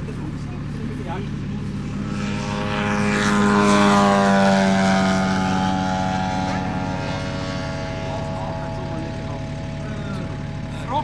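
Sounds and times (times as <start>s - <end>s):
propeller aircraft flying past: 0.0s - 11.0s.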